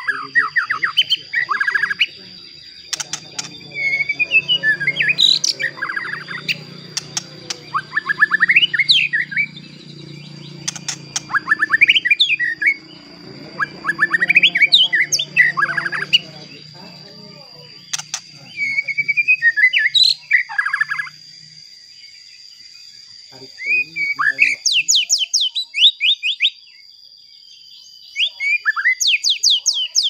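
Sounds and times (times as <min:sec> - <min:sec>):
steady high tone: 0:00.0 - 0:19.4
bird singing whistled notes: 0:00.0 - 0:30.0.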